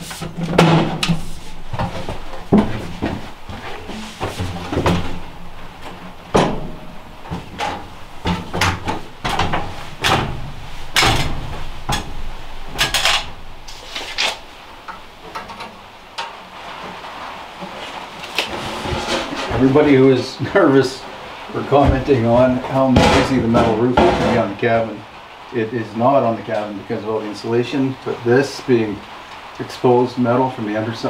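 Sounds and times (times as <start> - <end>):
sheet-metal pipe clunking: 0.0 - 16.4, 22.7 - 24.5.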